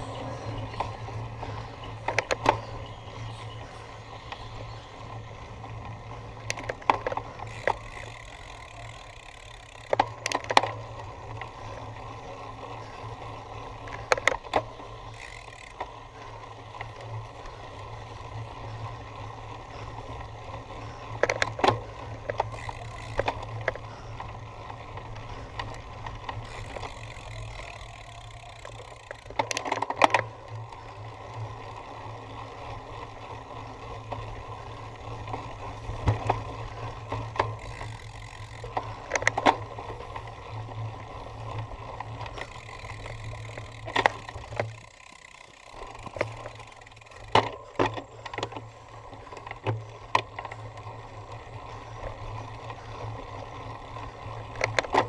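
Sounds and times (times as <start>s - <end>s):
bike rattling over bumps: 0.0s - 55.0s
bike rolling over rough ground: 0.0s - 55.0s.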